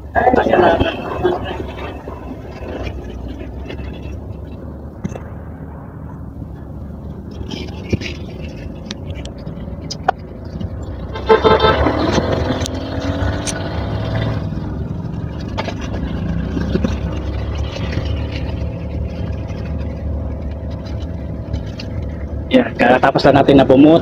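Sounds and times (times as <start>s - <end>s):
vehicle engine running: 0.0s - 24.0s
long vehicle horn: 11.1s - 12.6s.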